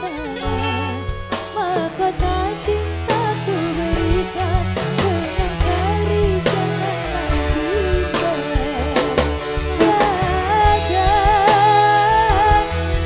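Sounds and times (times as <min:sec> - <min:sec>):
live band with gamelan and drums: 0:00.0 - 0:13.0
woman singing: 0:00.0 - 0:13.0.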